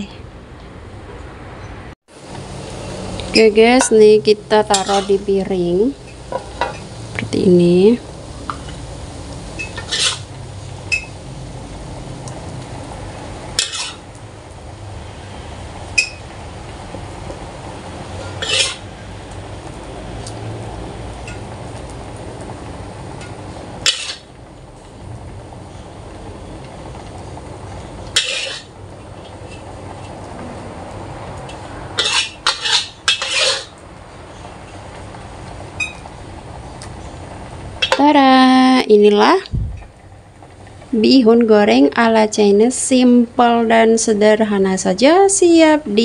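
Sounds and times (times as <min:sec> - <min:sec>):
steady low hum: 0:02.2 - 0:46.0
spatula scraping a wok: 0:02.3 - 0:11.2, 0:13.5 - 0:14.1, 0:18.0 - 0:19.2, 0:23.2 - 0:24.3, 0:28.0 - 0:30.1, 0:32.0 - 0:33.8.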